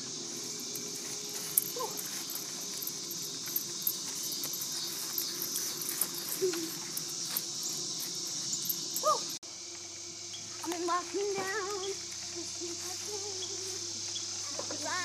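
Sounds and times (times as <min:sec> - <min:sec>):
insects chirping: 0:00.0 - 0:15.0
running footsteps on grass: 0:00.3 - 0:08.7.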